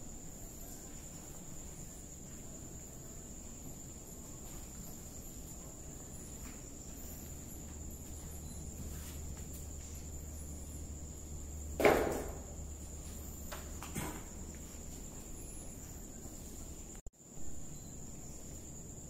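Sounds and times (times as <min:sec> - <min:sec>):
night insects trilling: 0:00.0 - 0:19.0
loud thump: 0:11.8 - 0:12.5.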